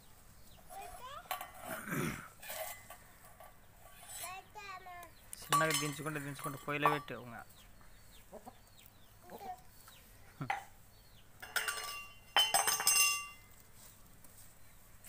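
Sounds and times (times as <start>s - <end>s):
hens clucking: 7.7s - 10.6s.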